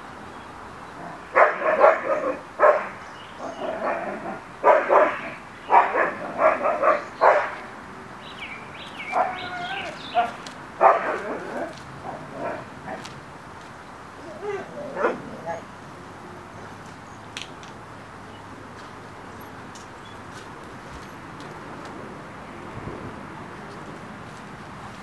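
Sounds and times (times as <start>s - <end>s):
dog barking: 1.3s - 3.0s, 3.8s - 7.7s, 9.1s - 13.0s, 14.5s - 15.7s.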